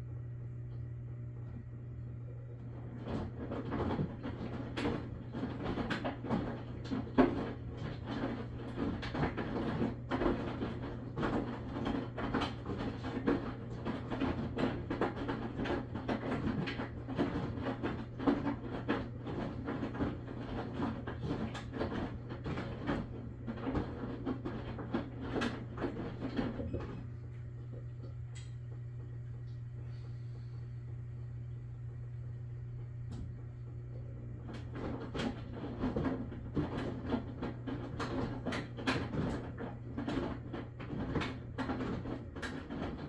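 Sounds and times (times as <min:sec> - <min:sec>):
washing machine motor hum: 0:00.0 - 0:43.0
drum knocking and clattering: 0:34.5 - 0:43.0.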